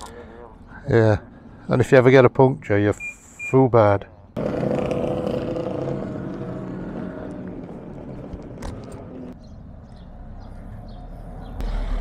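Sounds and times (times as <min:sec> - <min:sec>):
motorcycle engines running: 0:04.2 - 0:12.0.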